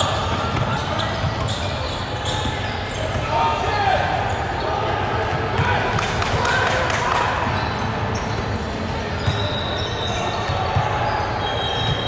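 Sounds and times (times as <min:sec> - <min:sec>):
hubbub of hall: 0:00.0 - 0:12.0
high squeals: 0:09.2 - 0:12.0.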